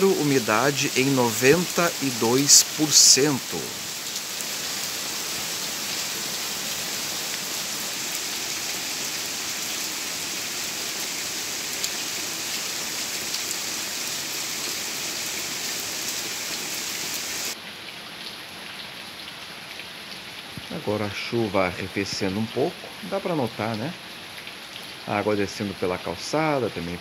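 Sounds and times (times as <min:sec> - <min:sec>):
heavy rain falling: 0:00.0 - 0:17.6.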